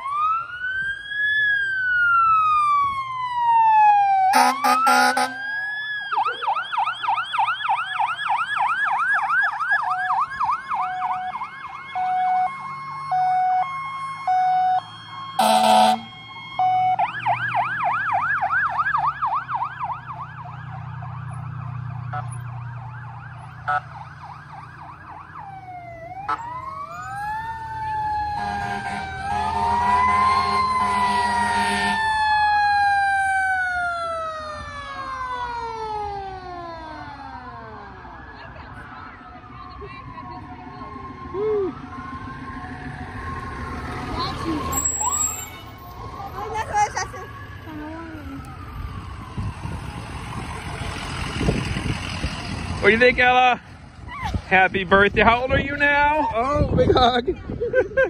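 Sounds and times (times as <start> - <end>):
diesel truck engine rumbling: 0.0 - 58.0
fire engine sirens: 0.0 - 58.0
loud horn blasts: 4.3 - 5.4, 15.4 - 16.1, 28.3 - 32.0.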